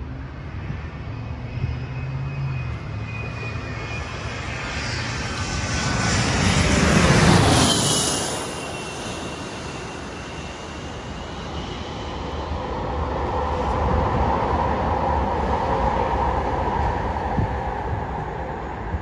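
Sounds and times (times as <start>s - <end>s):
jet engine rumble: 0.0s - 19.0s.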